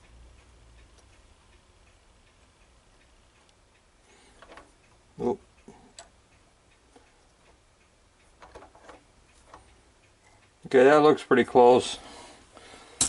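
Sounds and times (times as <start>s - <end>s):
small metallic clicks and taps: 4.3s - 5.0s, 5.6s - 10.6s.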